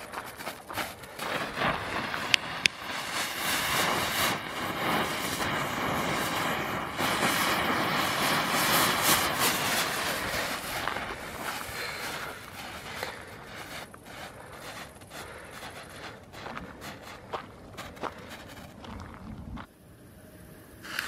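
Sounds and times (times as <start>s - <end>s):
sharp firework pops: 0.0s - 13.9s
firework hissing and crackling: 0.0s - 18.9s, 20.8s - 21.0s.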